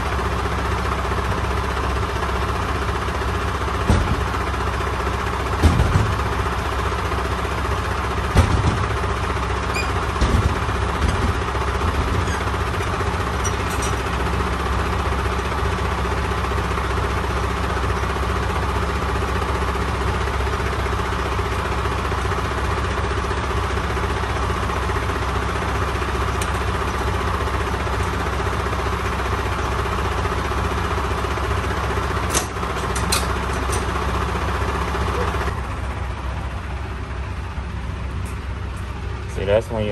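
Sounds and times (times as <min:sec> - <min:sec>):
truck diesel engine running: 0:00.0 - 0:39.9.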